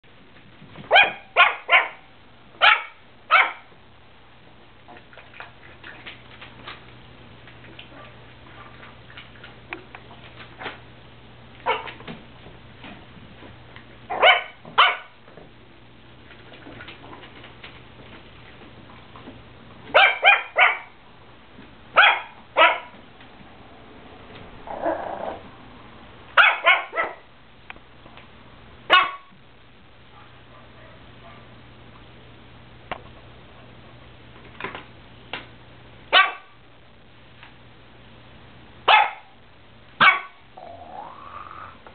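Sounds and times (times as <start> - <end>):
small dog barking: 0.9 - 3.7, 11.6 - 12.0, 14.1 - 15.2, 19.9 - 21.0, 22.0 - 23.0, 26.4 - 27.3, 28.9 - 29.4, 30.1 - 31.5, 36.1 - 36.6, 38.8 - 39.4, 40.0 - 40.5
dog growling: 24.6 - 25.5, 40.5 - 41.8.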